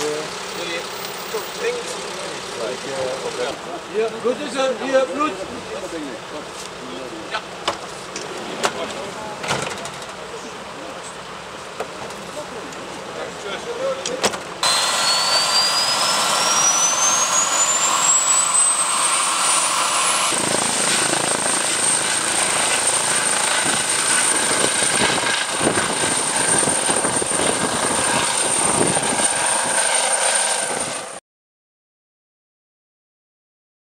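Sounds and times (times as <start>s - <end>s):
helicopter turbine whine: 0.0s - 9.4s, 14.6s - 31.2s.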